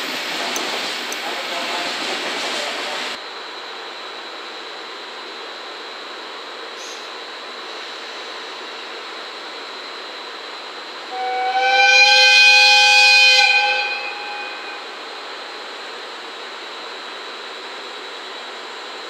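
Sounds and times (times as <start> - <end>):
locomotive air horn blast: 11.1 - 15.1.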